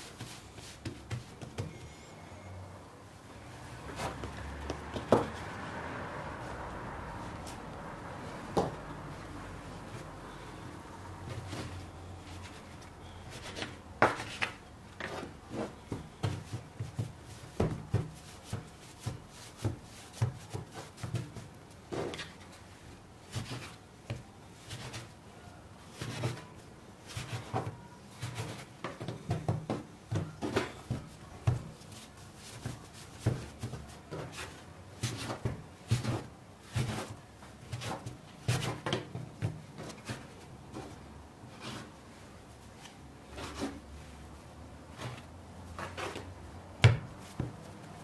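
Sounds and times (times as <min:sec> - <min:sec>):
soft thuds of dough: 0:13.4 - 0:22.2, 0:44.9 - 0:48.0
dough scraper cutting dough: 0:27.1 - 0:40.9.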